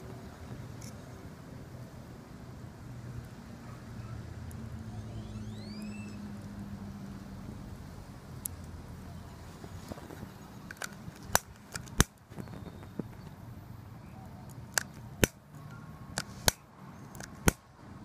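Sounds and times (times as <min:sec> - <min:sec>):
torch lighter igniter clicking: 0:10.7 - 0:12.3.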